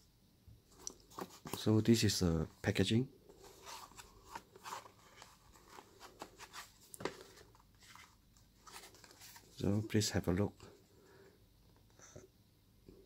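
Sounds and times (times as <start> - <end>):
box opening scrapes and rustles: 3.4 - 9.6.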